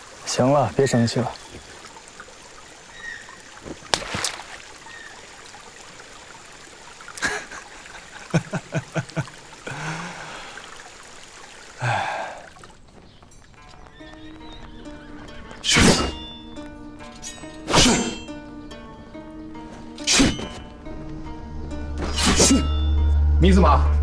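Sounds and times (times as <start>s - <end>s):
stream trickling over rocks: 0.0s - 21.0s
man laughing: 7.2s - 10.2s.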